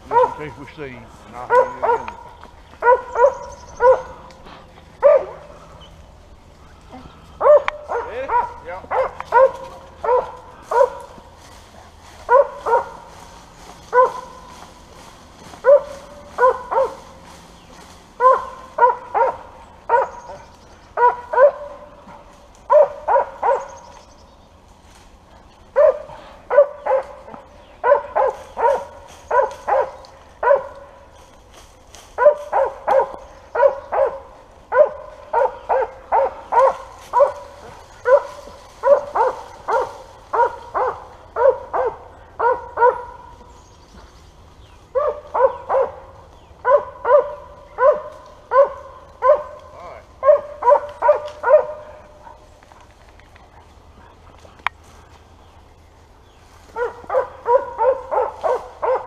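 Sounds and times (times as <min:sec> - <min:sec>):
dog barking: 0:00.1 - 0:00.6, 0:01.4 - 0:04.4, 0:05.0 - 0:05.7, 0:07.4 - 0:13.1, 0:13.9 - 0:14.5, 0:15.6 - 0:17.2, 0:18.2 - 0:23.8, 0:25.7 - 0:31.0, 0:32.2 - 0:43.4, 0:44.9 - 0:52.4, 0:56.7 - 0:59.0.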